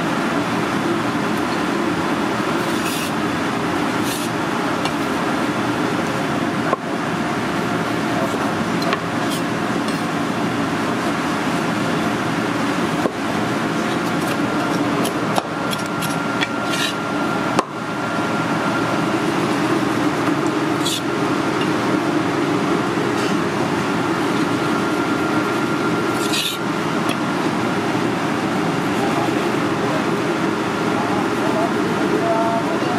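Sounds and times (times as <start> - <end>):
loud kitchen hum: 0.0 - 32.9
cleaver on wooden cutting board: 15.0 - 17.0, 26.1 - 26.6.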